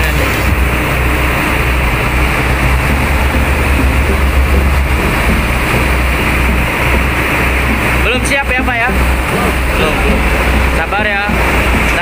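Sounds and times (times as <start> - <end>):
air compressor humming: 0.0 - 12.0.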